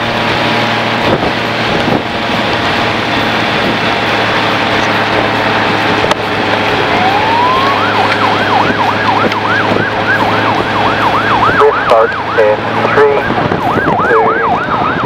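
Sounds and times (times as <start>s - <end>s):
road and wind noise: 0.0s - 15.0s
siren wailing and yelping: 6.7s - 15.0s.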